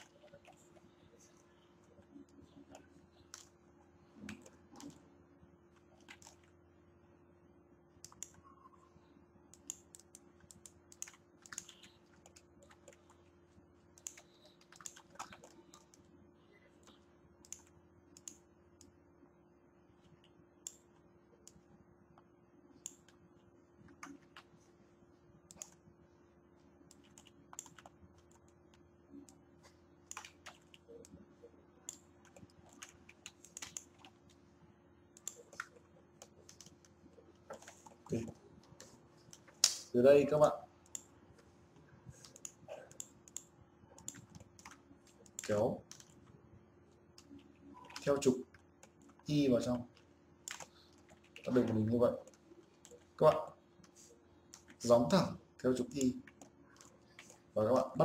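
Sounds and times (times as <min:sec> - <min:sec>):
steady low hum: 0:00.0 - 0:58.0
keyboard and mouse clicks: 0:04.2 - 0:05.0, 0:05.8 - 0:06.5, 0:08.0 - 0:08.5, 0:09.5 - 0:13.2, 0:13.9 - 0:16.1, 0:16.8 - 0:18.9, 0:23.9 - 0:24.5, 0:25.5 - 0:25.8, 0:26.9 - 0:31.2, 0:31.8 - 0:34.4, 0:35.1 - 0:39.9, 0:42.1 - 0:46.3, 0:50.4 - 0:55.2.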